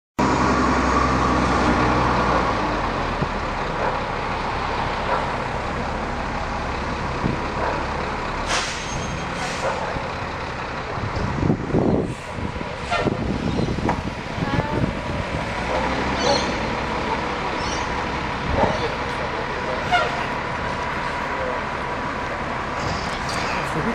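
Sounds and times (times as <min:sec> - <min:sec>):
heavy vehicle engines running: 0:00.2 - 0:23.9
road traffic noise: 0:00.2 - 0:23.9
vehicles passing: 0:00.2 - 0:23.9
brief air hisses: 0:08.5 - 0:09.8.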